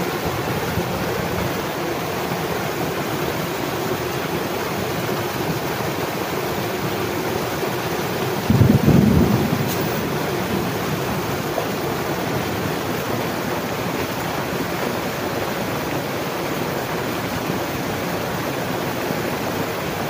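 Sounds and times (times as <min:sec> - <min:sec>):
flowing water rushing: 0:00.0 - 0:20.0.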